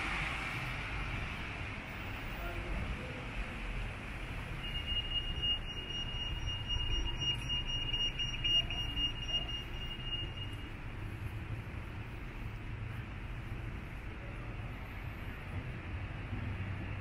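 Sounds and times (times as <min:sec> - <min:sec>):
street traffic rumble: 0:00.0 - 0:17.0
high-pitched electronic beeping: 0:04.6 - 0:10.6.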